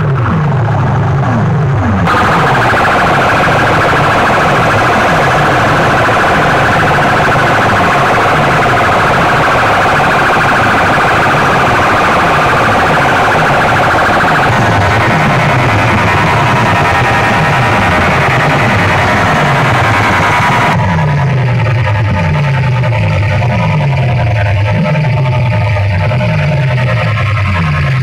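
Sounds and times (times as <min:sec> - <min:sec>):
siren effect from loudspeakers: 0:02.0 - 0:21.8.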